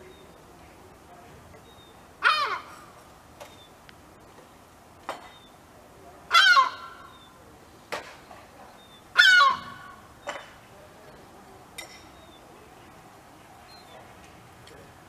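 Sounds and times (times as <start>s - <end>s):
gull alarm calls: 2.2s - 2.8s, 6.3s - 7.3s, 9.2s - 10.1s.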